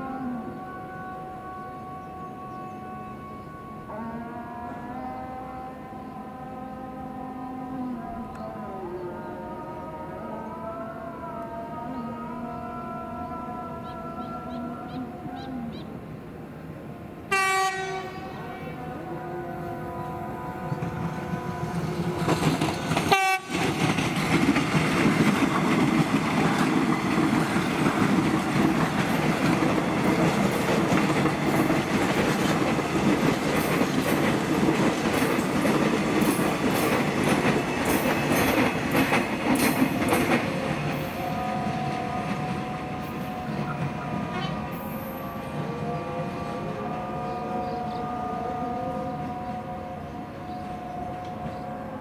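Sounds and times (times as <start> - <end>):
train wheels clattering on rails: 20.7 - 45.1.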